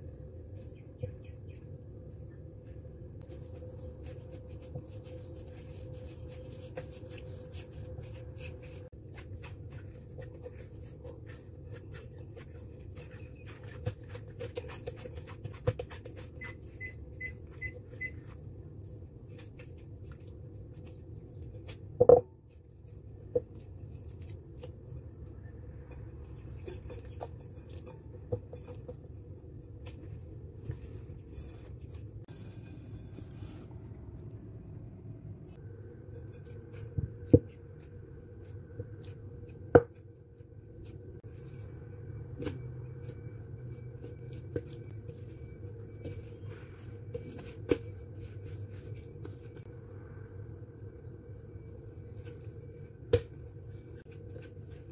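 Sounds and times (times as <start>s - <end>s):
hands kneading dough: 0.0s - 34.2s, 35.5s - 54.9s.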